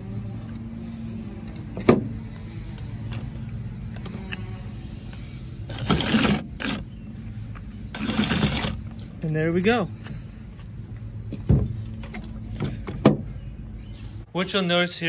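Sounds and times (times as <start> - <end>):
steady low hum: 0.0 - 14.3
reciprocating saw cutting plastic: 5.7 - 6.8, 7.9 - 8.8.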